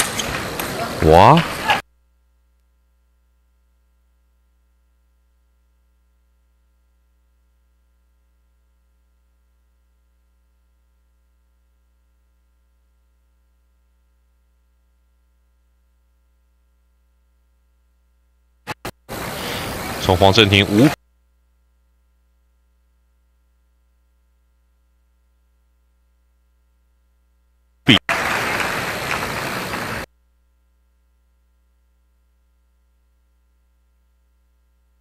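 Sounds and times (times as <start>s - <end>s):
electrical mains hum: 0.0s - 35.0s
loud broadcast sound: 0.8s - 1.8s, 18.7s - 21.0s, 27.9s - 28.4s.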